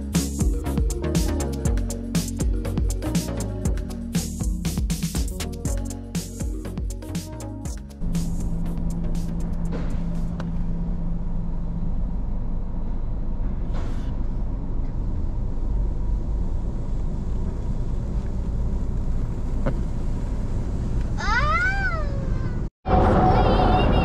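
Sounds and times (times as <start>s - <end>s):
car engine rumbling: 0.0s - 24.0s.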